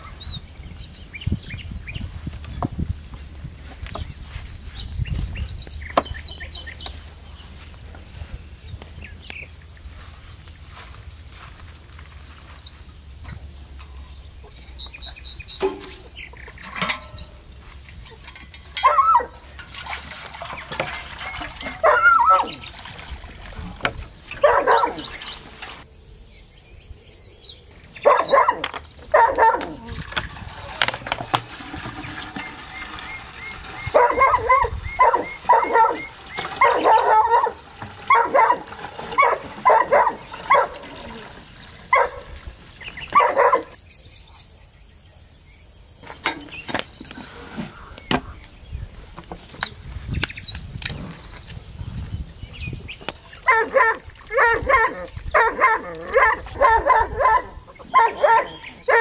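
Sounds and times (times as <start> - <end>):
high insect trill: 0.0 - 59.0
dog barking: 24.4 - 25.1, 28.0 - 29.9, 33.9 - 40.9, 41.9 - 42.3, 43.1 - 43.8, 53.5 - 59.0.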